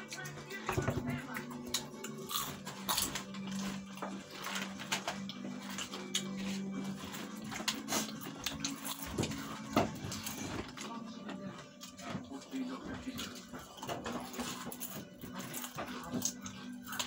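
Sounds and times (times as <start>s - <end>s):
chips being eaten: 1.2s - 10.5s, 13.2s - 17.0s
chip packets crinkling: 1.2s - 11.2s.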